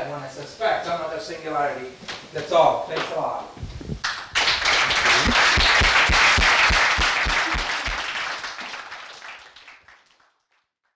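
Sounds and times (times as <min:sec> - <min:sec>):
audience applauding: 0:04.0 - 0:10.7.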